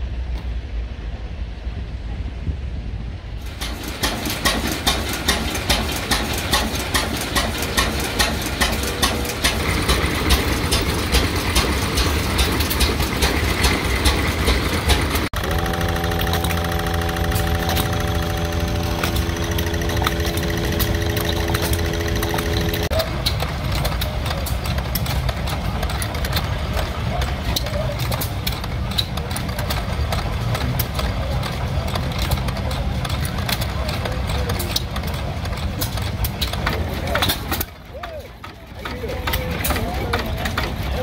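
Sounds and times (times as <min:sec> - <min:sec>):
steady engine hum: 0:00.0 - 0:41.0
gas engines popping exhaust: 0:03.4 - 0:41.0.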